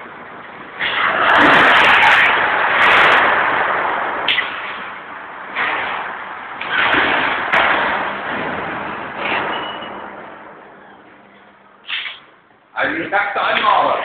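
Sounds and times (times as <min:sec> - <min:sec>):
vehicle rushing across hall floor: 0:00.6 - 0:10.8
knocks and bangs over debris: 0:01.0 - 0:10.0.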